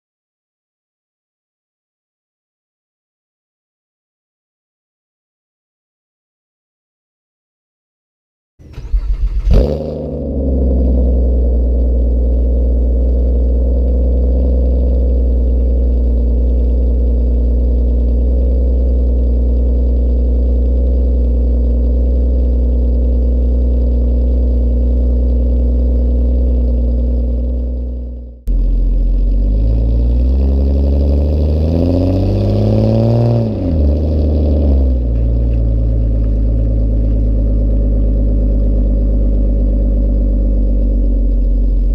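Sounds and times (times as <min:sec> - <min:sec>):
car engine idling: 0:08.6 - 0:41.9
car engine revving: 0:08.6 - 0:41.9
car engine starting: 0:08.6 - 0:41.9.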